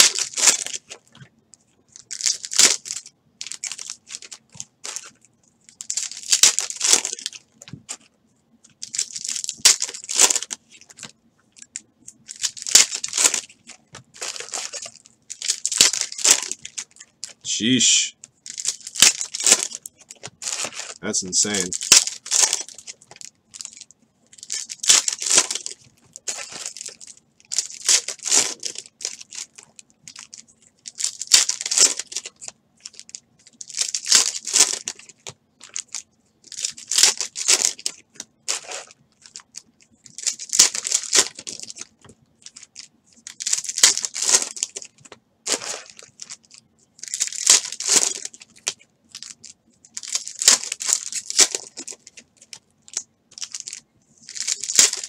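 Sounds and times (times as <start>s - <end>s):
foil wrappers crinkling and tearing: 0.0s - 1.1s, 1.9s - 8.1s, 8.7s - 17.5s, 18.4s - 55.0s.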